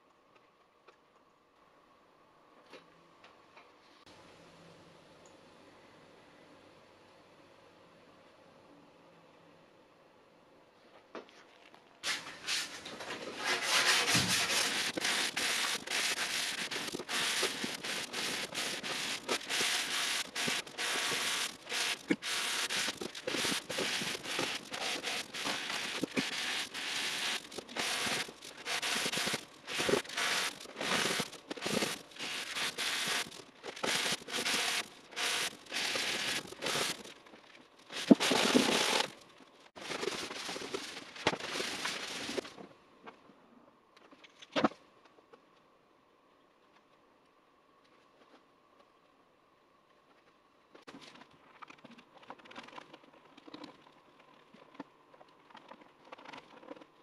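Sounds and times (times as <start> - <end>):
hand sanding strokes: 12.1 - 37.0.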